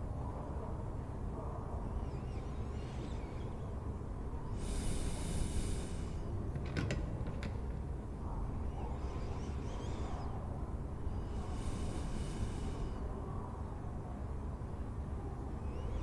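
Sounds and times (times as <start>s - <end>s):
soft rush of hiss: 4.4s - 6.5s, 10.9s - 13.6s.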